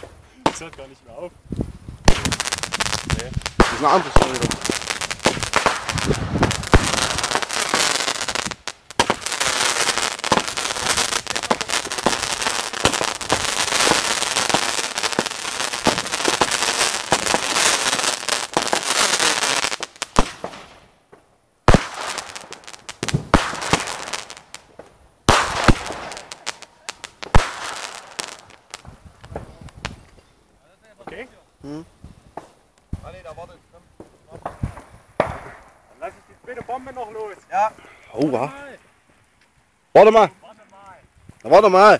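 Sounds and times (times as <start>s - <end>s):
fireworks sharp bangs: 0.0s - 1.0s, 2.0s - 30.3s, 32.0s - 37.3s
fireworks crackling bangs: 0.0s - 41.8s.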